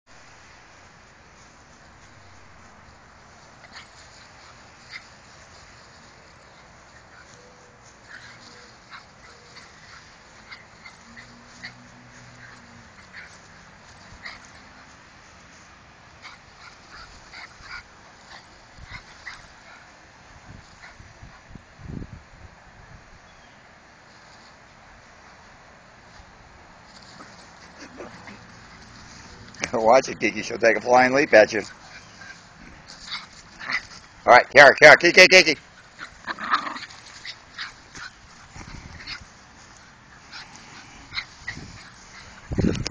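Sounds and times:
dog yipping and whimpering: 0:07.2 - 0:09.9.

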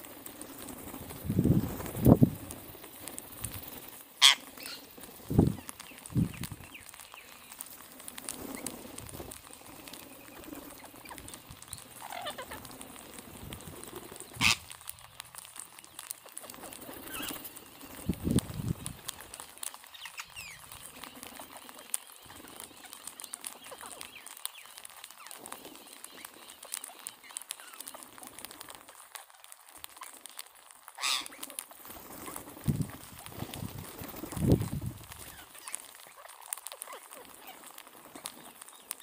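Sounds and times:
beaks cracking seeds: 0:00.0 - 0:39.0
parakeet calls: 0:04.2 - 0:04.9, 0:09.5 - 0:12.9, 0:13.8 - 0:14.8, 0:15.8 - 0:18.0, 0:19.1 - 0:28.0, 0:30.9 - 0:31.6, 0:35.2 - 0:39.0.

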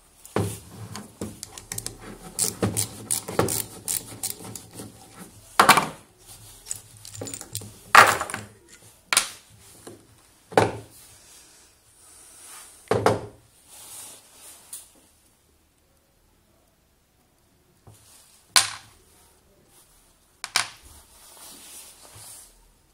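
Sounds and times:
metal parts clunking on desk: 0:06.6 - 0:08.8.

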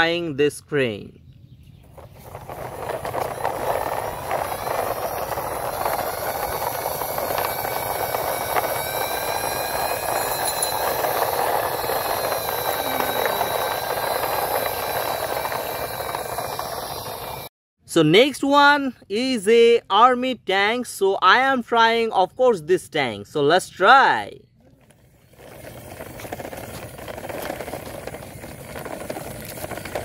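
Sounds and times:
toy truck rolling over dirt: 0:01.7 - 0:17.5, 0:24.8 - 0:30.0
faint thin whine: 0:02.0 - 0:17.5.

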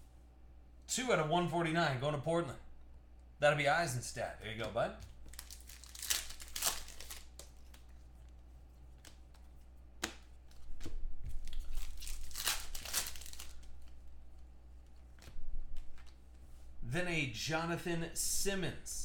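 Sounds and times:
cards being handled: 0:04.5 - 0:16.7
foil wrapper tearing and crinkling: 0:05.2 - 0:07.9, 0:11.4 - 0:14.0.

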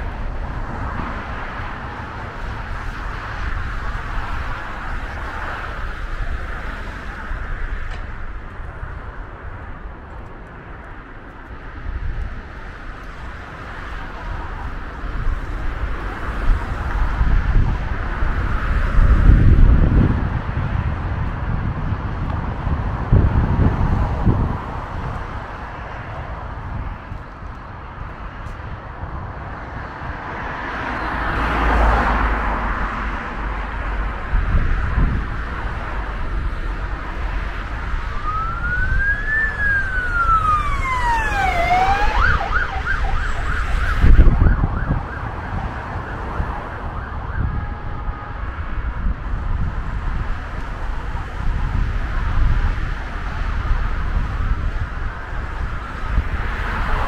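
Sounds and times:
loud rush of noise: 0:00.0 - 0:57.0
road traffic: 0:00.0 - 0:57.0
siren wailing and yelping: 0:38.0 - 0:48.1.

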